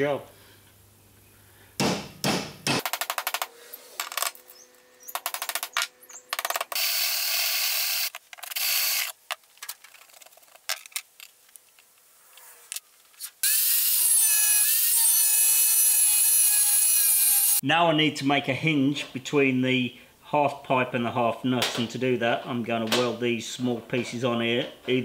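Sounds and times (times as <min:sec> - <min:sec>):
angle grinder cutting steel: 0:13.4 - 0:17.6.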